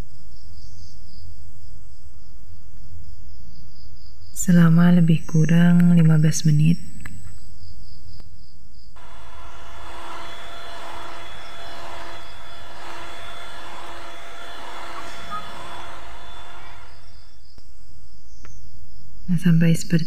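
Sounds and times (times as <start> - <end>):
electric hand mixer whirring: 9.0 - 17.4.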